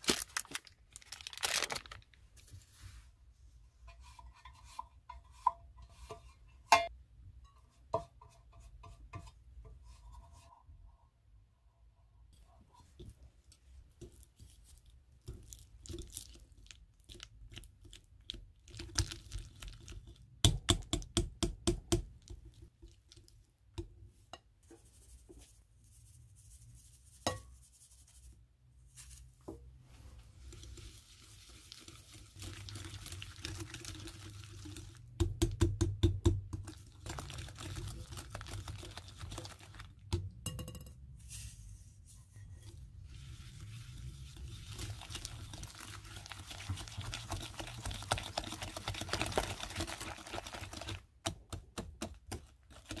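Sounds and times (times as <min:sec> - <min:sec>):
whisk beating butter in glass bowl: 0:44.2 - 0:51.0.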